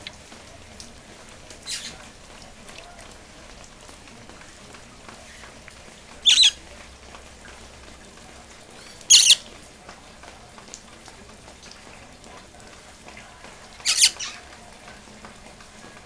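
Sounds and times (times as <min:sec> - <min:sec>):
faint rain hiss: 0:00.0 - 0:16.0
parrot squawking: 0:01.6 - 0:02.0, 0:06.2 - 0:06.6, 0:08.8 - 0:09.5, 0:13.8 - 0:14.4.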